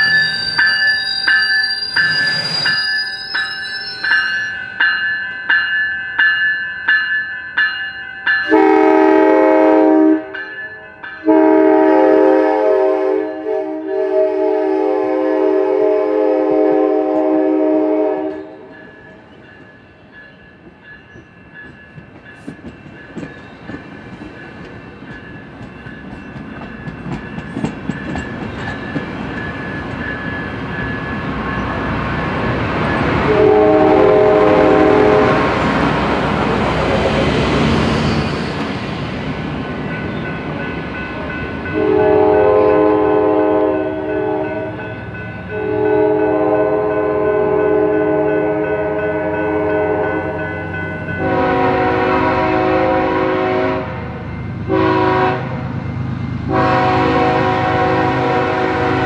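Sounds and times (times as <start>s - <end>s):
rumble of train cars: 0.0s - 59.0s
train horn blasts: 8.4s - 10.4s, 11.2s - 18.8s, 33.2s - 35.6s, 41.6s - 44.8s, 45.5s - 50.5s, 51.2s - 55.6s, 56.5s - 59.0s
train wheels clicking on rails: 18.3s - 42.0s.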